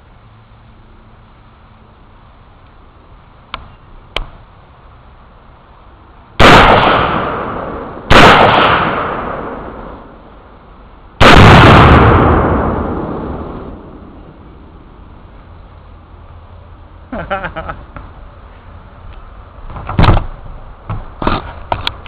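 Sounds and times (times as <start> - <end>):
exploding target blast: 6.4 - 10.1, 11.2 - 14.2
gunshots with rolling echo: 6.4 - 10.1, 11.2 - 14.1.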